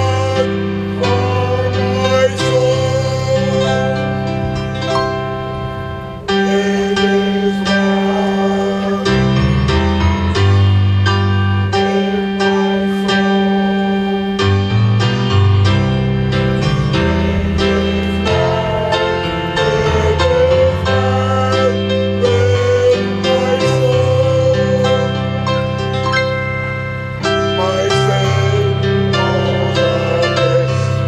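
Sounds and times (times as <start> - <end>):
slow piano song: 0.0 - 31.0
sustained bass line: 0.0 - 31.0.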